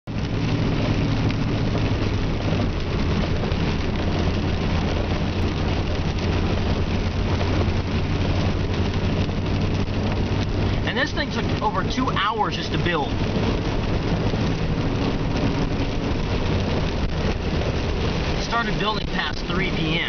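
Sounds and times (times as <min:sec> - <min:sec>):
rain: 0:00.0 - 0:20.0
engine drone inside cabin: 0:00.1 - 0:20.0
tyres hissing on wet road: 0:00.1 - 0:20.0.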